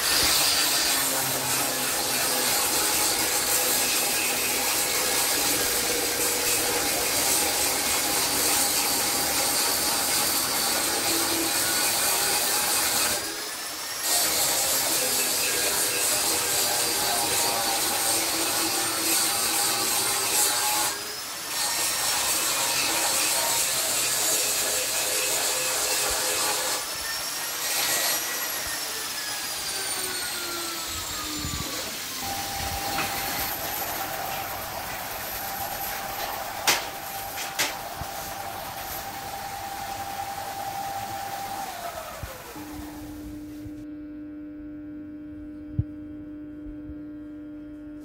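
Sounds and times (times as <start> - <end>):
angle grinder grinding metal: 0.0 - 43.8
quiet steady hum: 42.6 - 48.0.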